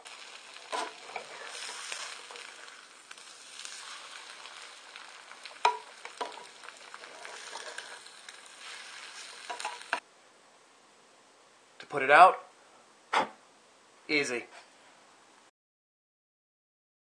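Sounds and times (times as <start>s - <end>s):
eggs sizzling in a pan: 0.0s - 10.0s
spatula scraping and tapping pan: 0.4s - 3.8s, 4.5s - 10.0s.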